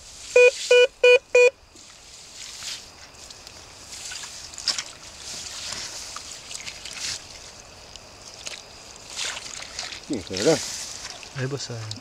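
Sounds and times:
hand splashing in muddy water: 0:08.3 - 0:11.4.

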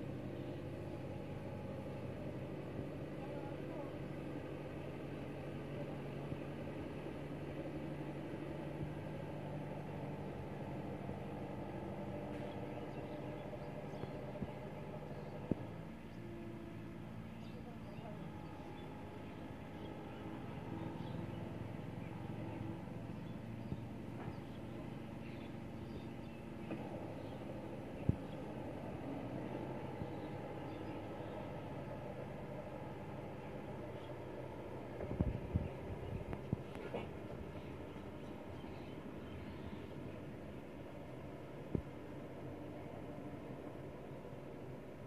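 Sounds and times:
tractor diesel engine running: 0:00.0 - 0:45.0.

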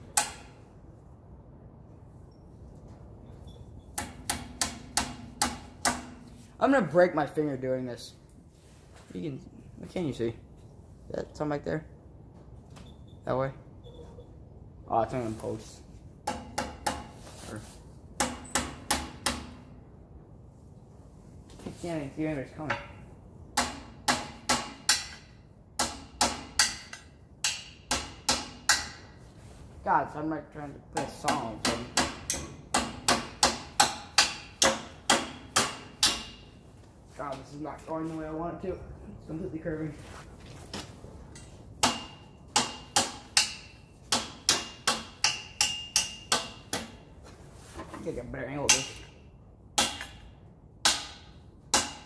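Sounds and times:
hammer striking nail into wood: 0:04.0 - 0:06.2, 0:16.2 - 0:17.2, 0:18.2 - 0:19.6, 0:23.6 - 0:29.0, 0:31.0 - 0:36.5, 0:41.8 - 0:47.0, 0:49.8 - 0:50.2, 0:50.8 - 0:52.0
hammer driving nail into wood: 0:50.8 - 0:52.0.

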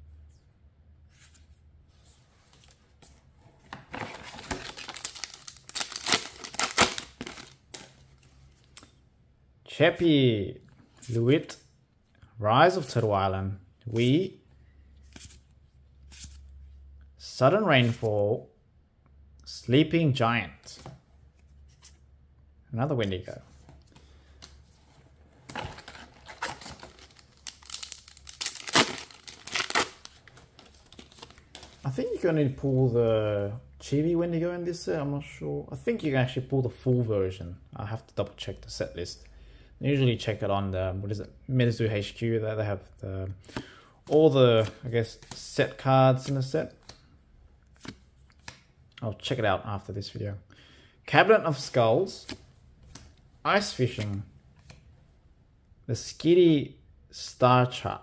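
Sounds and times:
foil wrapper crinkling: 0:04.5 - 0:07.6, 0:26.4 - 0:30.2.

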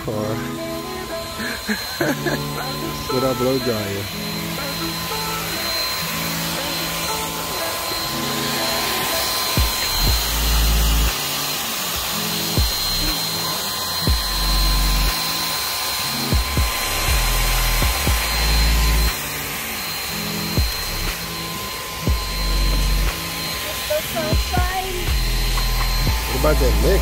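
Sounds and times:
hair dryer running: 0:00.0 - 0:27.0
music with heavy bass beat: 0:08.7 - 0:11.4, 0:12.3 - 0:13.4, 0:14.0 - 0:15.4, 0:16.2 - 0:19.4, 0:20.3 - 0:21.4, 0:22.1 - 0:23.4, 0:24.2 - 0:27.0.

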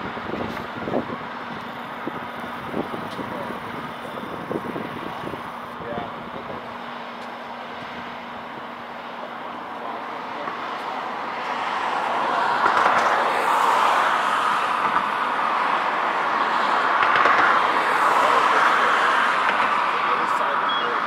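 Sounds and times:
faint low engine hum: 0:00.0 - 0:12.5
vehicle engine and road noise: 0:00.0 - 0:21.0.

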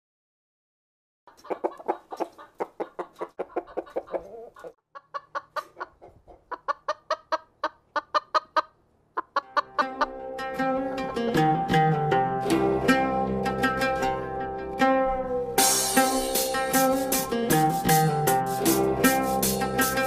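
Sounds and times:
chicken clucking rapidly: 0:01.3 - 0:10.2.

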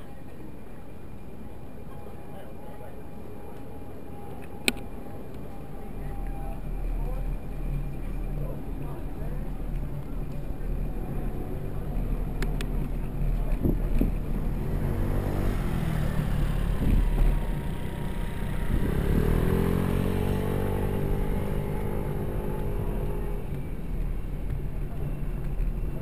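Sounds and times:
road traffic rumble: 0:00.0 - 0:26.0
vehicle engine accelerating: 0:04.0 - 0:26.0.

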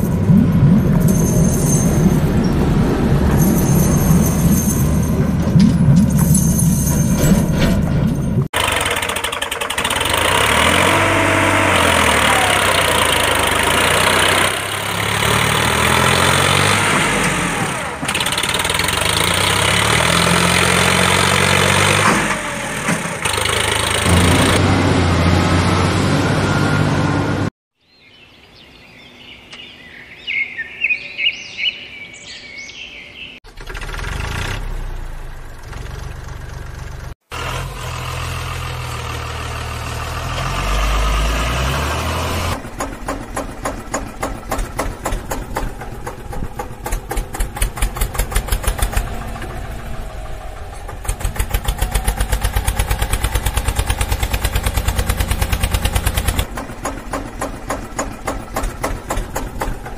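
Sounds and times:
engine running loudly: 0:08.6 - 0:27.5, 0:40.4 - 0:59.9
birds chirping: 0:27.8 - 0:33.4.

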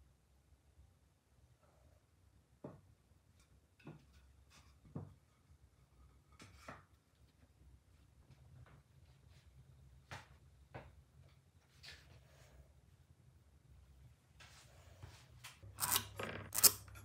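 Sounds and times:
quiet room hum: 0:00.0 - 0:17.0.

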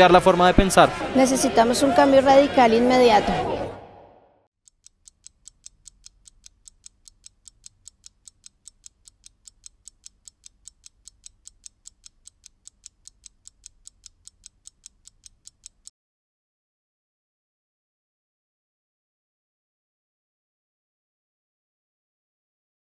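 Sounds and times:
fast clock ticking: 0:04.6 - 0:15.9.

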